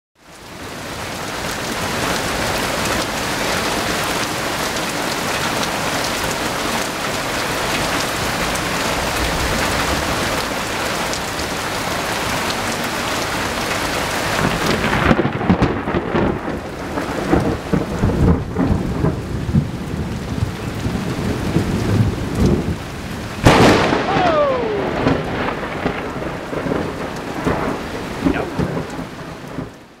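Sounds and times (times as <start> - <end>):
heavy rain falling: 0.2 - 30.0
loud thunderclap: 14.4 - 22.8, 23.4 - 29.7
low thunder: 14.4 - 22.8, 23.4 - 29.7.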